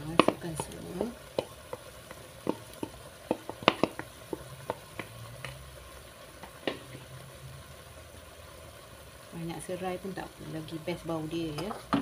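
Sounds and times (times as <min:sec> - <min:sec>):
clams clicking in a wok: 0:00.0 - 0:05.7
faint sizzle: 0:00.0 - 0:12.0.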